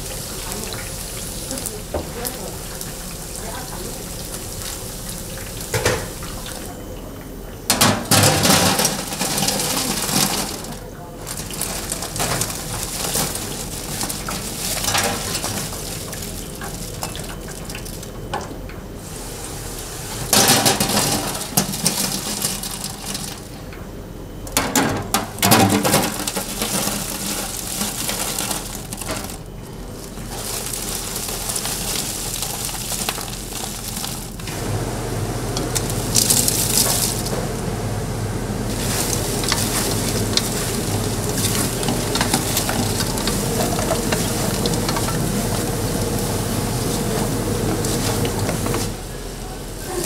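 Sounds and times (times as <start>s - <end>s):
chicken sizzling in hot oil: 0.0s - 6.7s, 11.4s - 18.1s, 25.6s - 50.0s
metal utensils scraping pans: 38.8s - 46.2s.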